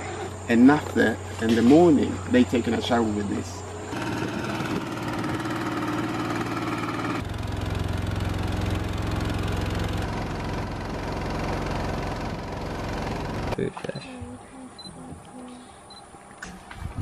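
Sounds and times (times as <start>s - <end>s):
outboard motor running: 1.8s - 13.6s.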